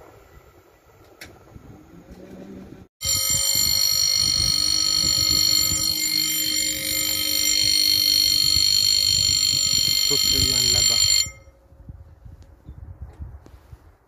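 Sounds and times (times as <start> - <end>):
level crossing warning bell: 3.0 - 11.6.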